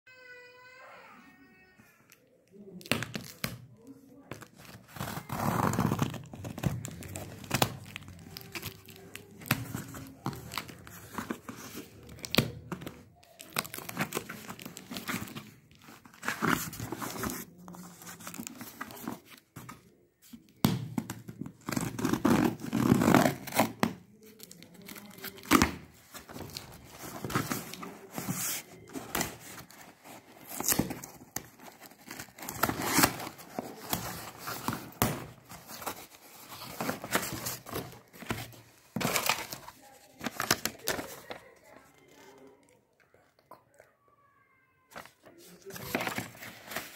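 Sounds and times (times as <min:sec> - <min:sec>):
cardboard box tearing: 0:04.6 - 0:09.0, 0:25.3 - 0:39.6
packing tape ripping: 0:28.9 - 0:35.1.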